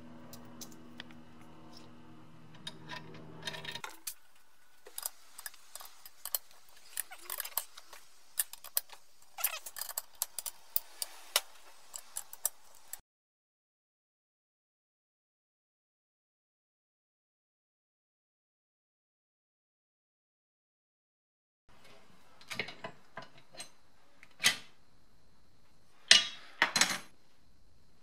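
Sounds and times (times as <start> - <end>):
low steady hum: 0.0 - 13.0
metallic clicks of washers and spanner: 4.9 - 13.0.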